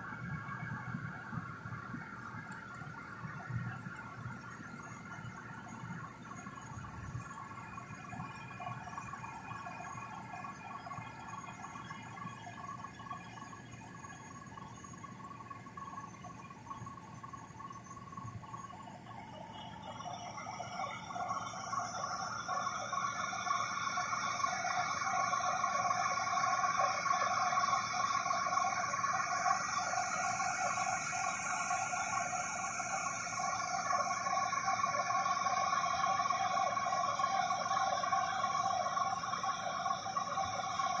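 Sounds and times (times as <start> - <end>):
cotton picker high whine: 19.2 - 41.0.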